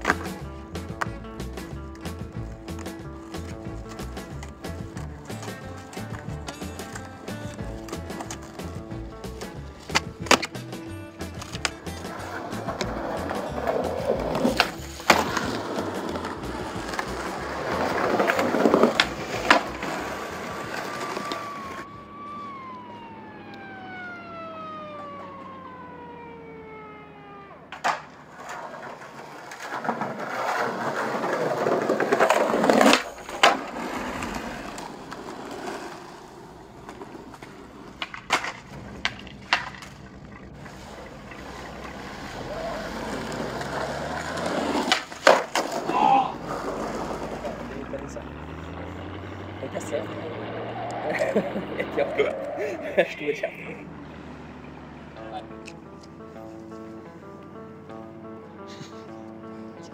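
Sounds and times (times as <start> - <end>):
skateboard clacks: 0.0 - 22.0, 27.6 - 50.0
skateboard wheels rolling on concrete: 0.0 - 59.9
pitched tone sliding down: 15.3 - 27.8.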